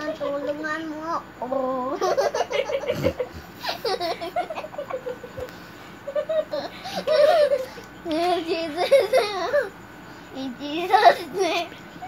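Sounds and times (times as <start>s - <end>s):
young child laughing: 1.9s - 7.9s, 8.7s - 9.7s.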